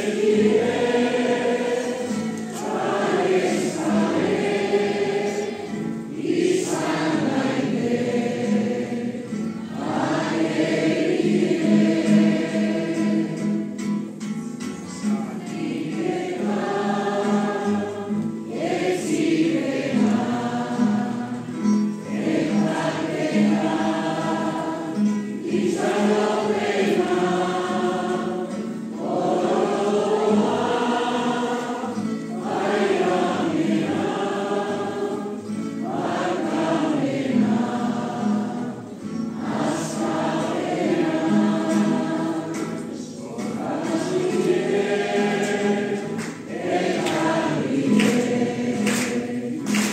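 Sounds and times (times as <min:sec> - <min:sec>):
congregation singing a hymn: 0:00.0 - 0:49.9.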